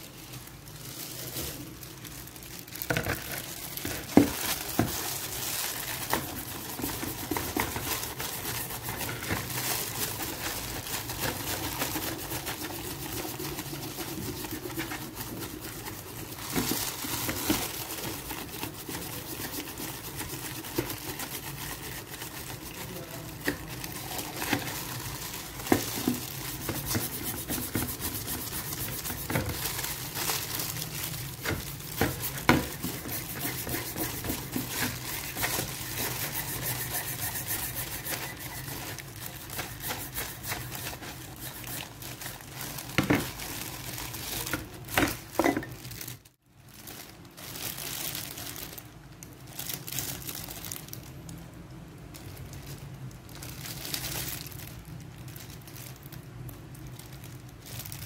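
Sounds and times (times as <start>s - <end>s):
plastic gloves crinkling: 0.0s - 58.0s
toothbrush scrubbing metal: 5.9s - 16.7s, 17.8s - 24.8s, 25.5s - 29.6s, 31.4s - 42.3s.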